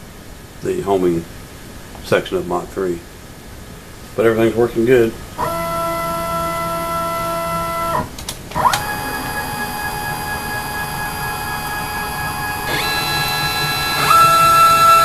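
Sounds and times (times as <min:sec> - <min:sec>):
stepper motor whining: 0:05.4 - 0:15.0.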